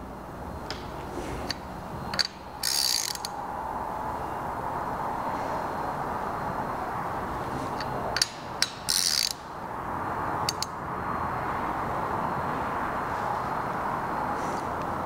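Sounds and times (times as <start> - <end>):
steady background hum: 0.0 - 15.0
hand ratchet clicking: 1.5 - 3.3, 8.2 - 9.4.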